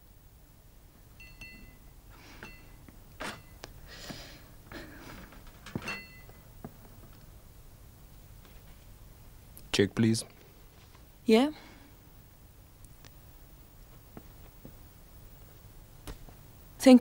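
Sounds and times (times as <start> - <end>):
tableware clinking: 1.2 - 3.6, 5.6 - 6.4.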